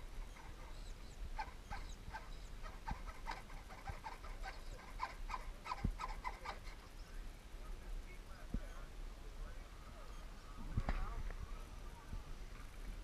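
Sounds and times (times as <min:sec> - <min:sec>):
animal chirping: 0:00.0 - 0:06.8.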